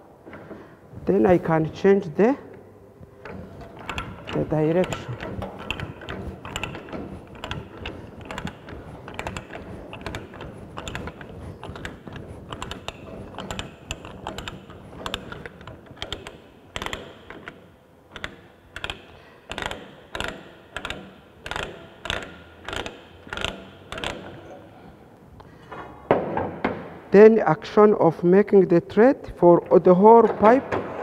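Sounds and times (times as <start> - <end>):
ratchet pawl clicking: 3.2 - 24.4.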